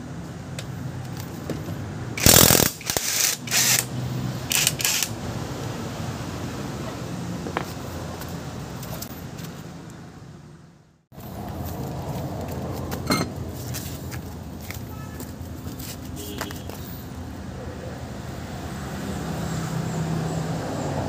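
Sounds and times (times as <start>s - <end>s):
cordless impact wrench bursts: 2.2s - 3.9s, 4.5s - 5.2s.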